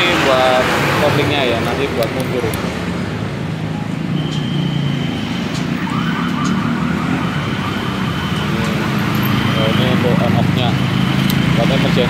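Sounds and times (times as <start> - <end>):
traffic hum: 0.0 - 12.0
siren-like warbling tone: 4.1 - 12.0.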